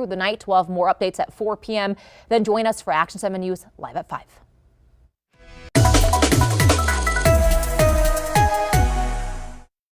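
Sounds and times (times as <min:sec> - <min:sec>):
synth hits with falling bass sweep: 0:05.7 - 0:09.7.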